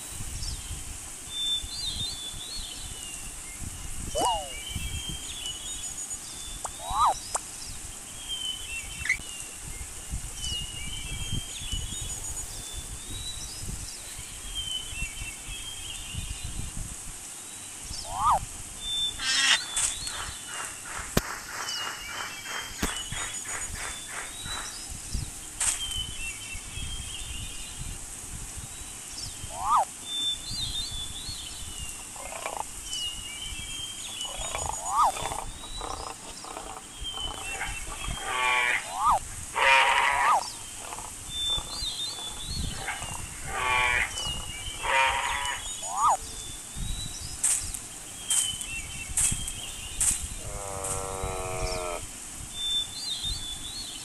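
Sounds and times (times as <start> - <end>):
bird chirps and calls: 4.0 - 5.9, 6.5 - 7.4, 17.9 - 18.4, 19.0 - 25.0, 29.2 - 52.0.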